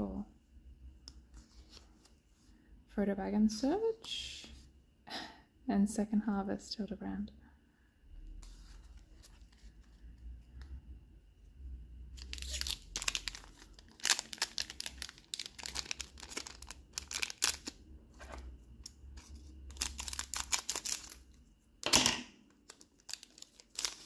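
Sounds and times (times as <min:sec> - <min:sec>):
foil wrapper crinkling and tearing: 0:12.2 - 0:17.8, 0:18.8 - 0:21.4, 0:22.6 - 0:24.0.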